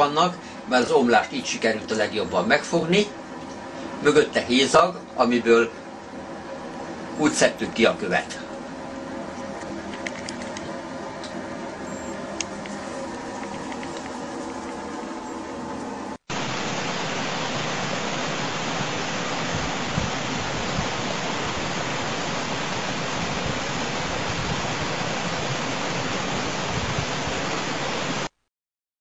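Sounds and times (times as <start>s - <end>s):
faint hiss with low hum: 0.0s - 28.4s
water rushing over rocks: 16.3s - 28.4s.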